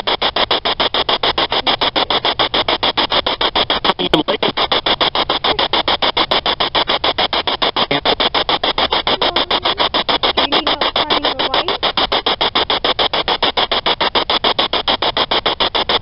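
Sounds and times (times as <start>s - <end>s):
night insects chirping: 7.8s - 13.6s.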